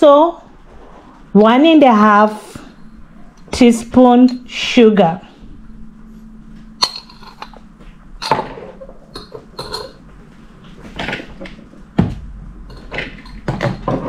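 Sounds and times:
kitchenware knocks and clinks: 0:08.2 - 0:10.0, 0:12.7 - 0:14.0.

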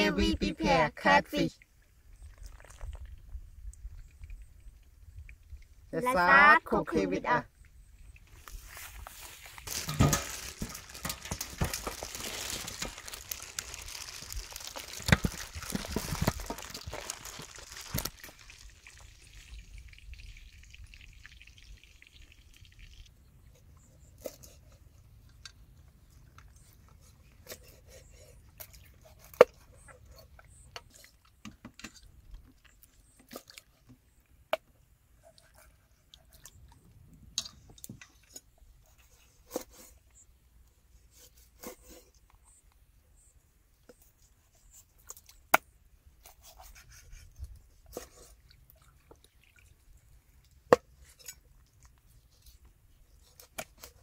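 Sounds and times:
rustling while preparing food: 0:08.3 - 0:19.4
small clicks and crackles: 0:08.4 - 0:19.6.

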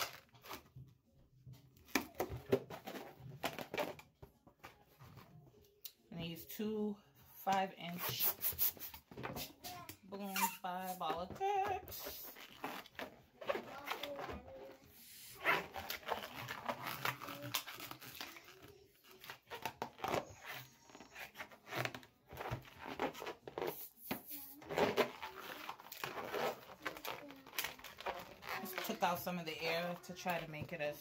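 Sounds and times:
balloon squeaking under fingers: 0:08.0 - 0:11.0, 0:12.0 - 0:29.1.

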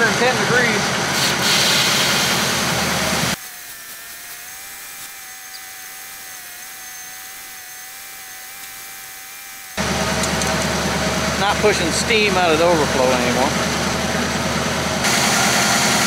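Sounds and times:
hose water hissing on engine: 0:01.1 - 0:03.4
car engine idling: 0:09.8 - 0:15.1.

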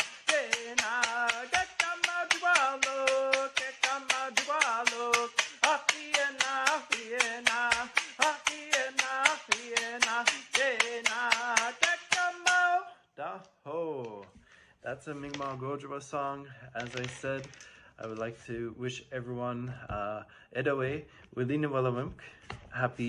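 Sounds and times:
wooden stick rattle slapped on palm: 0:00.0 - 0:12.7
man singing long held notes: 0:00.0 - 0:14.4.

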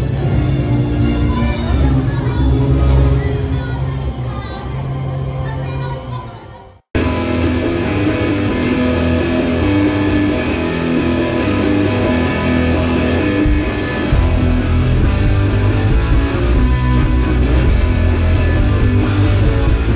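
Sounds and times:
rock music with guitar: 0:07.0 - 0:19.9.

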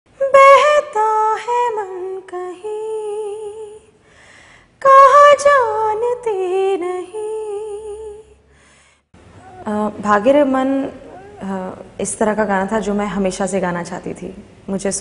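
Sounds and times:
woman singing: 0:00.2 - 0:04.0, 0:04.8 - 0:08.4, 0:09.4 - 0:12.8.

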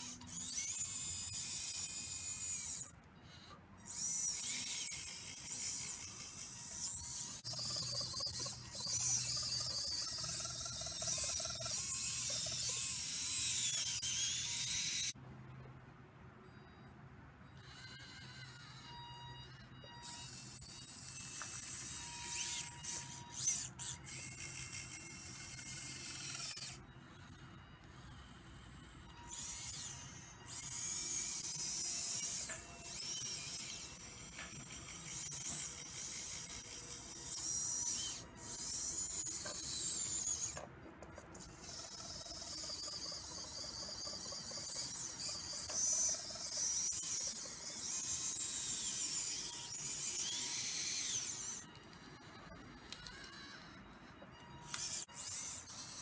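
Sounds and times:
electric motor whine: 0:41.3 - 0:56.0.

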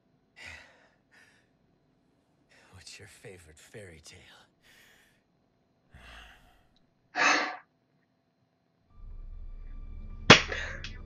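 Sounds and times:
person gasping: 0:00.4 - 0:01.4, 0:05.9 - 0:07.6.

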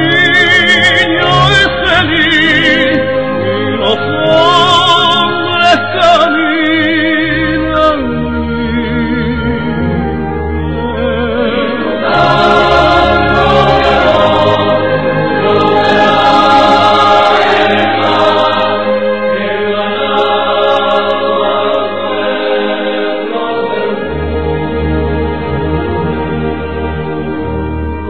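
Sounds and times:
choir singing held notes: 0:11.5 - 0:27.8.

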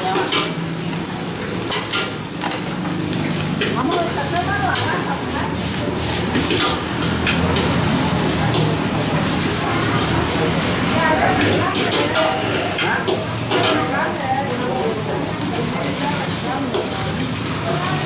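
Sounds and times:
rice sizzling in wok: 0:00.0 - 0:18.0
metal ladle scraping wok: 0:05.6 - 0:13.9.

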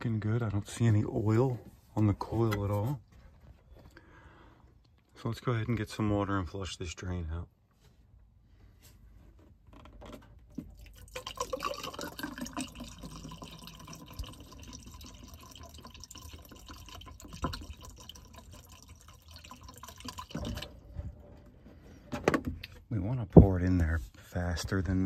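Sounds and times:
water pouring into pipe: 0:10.6 - 0:20.9.

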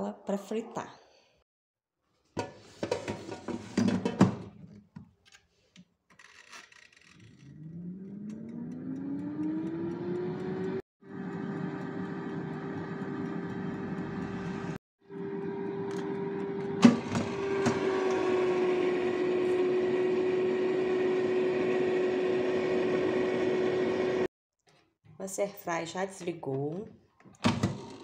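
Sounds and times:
air fryer fan humming: 0:08.2 - 0:24.3.

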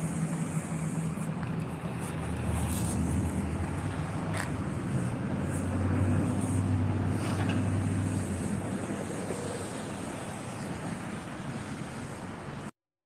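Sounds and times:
vehicle engine rumble: 0:00.0 - 0:12.7
outdoor traffic: 0:00.0 - 0:12.8.

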